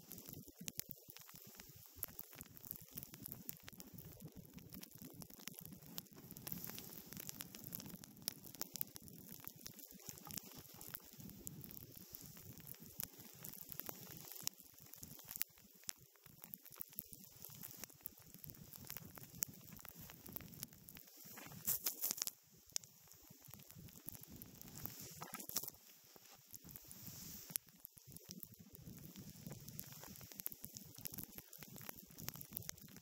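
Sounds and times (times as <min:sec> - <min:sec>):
snowboard hissing over snow: 0:24.7 - 0:25.6, 0:26.8 - 0:27.6.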